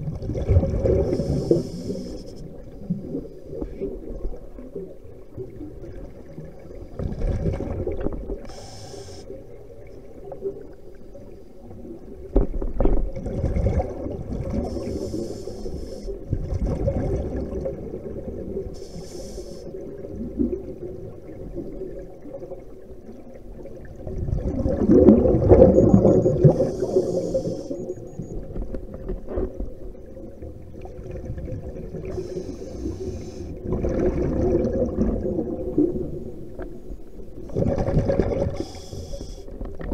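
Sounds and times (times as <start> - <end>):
low underwater drone: 0.0 - 39.9
water rushing and bubbling: 0.0 - 39.9
short hissing bursts: 1.1 - 2.5, 8.5 - 9.3, 14.7 - 16.2, 18.8 - 19.8, 26.5 - 27.8, 32.1 - 33.5, 38.6 - 39.4.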